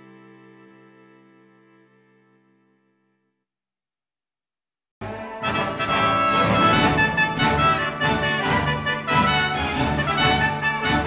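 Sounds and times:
loud music with brass instruments: 5.0s - 11.0s.

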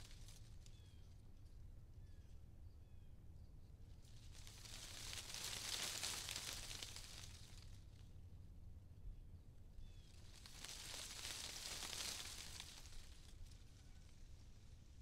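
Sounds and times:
soft crackling rustle: 0.0s - 1.6s, 3.8s - 8.3s, 9.8s - 15.0s.

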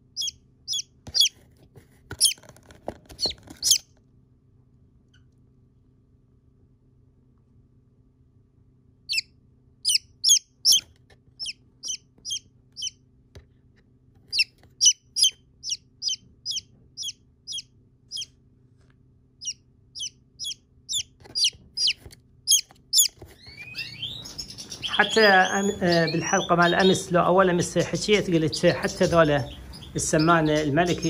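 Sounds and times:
chick peeping: 0.0s - 1.4s, 2.1s - 2.5s, 3.1s - 3.9s, 9.1s - 13.0s, 14.3s - 18.4s, 19.4s - 31.0s.

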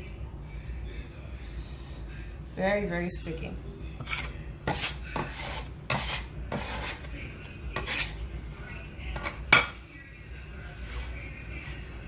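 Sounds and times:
hands kneading dough: 4.0s - 12.0s.

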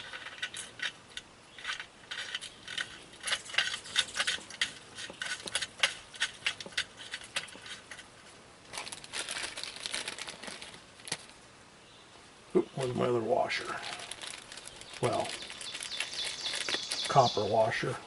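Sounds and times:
small metal parts clinking: 0.0s - 8.0s
crinkly rustle: 0.0s - 11.4s, 12.8s - 17.8s.

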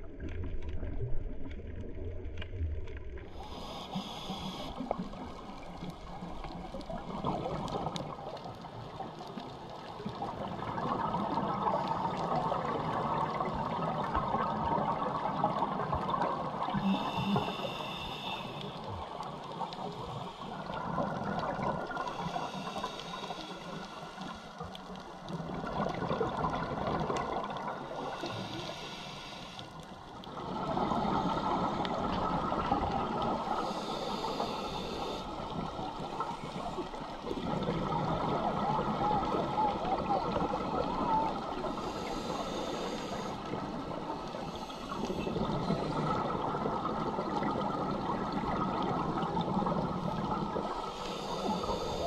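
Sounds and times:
hissing regulator inhalations: 3.4s - 5.2s, 16.7s - 21.0s, 21.9s - 24.7s, 27.4s - 29.9s, 33.4s - 37.2s, 41.6s - 46.2s, 50.6s - 52.0s.

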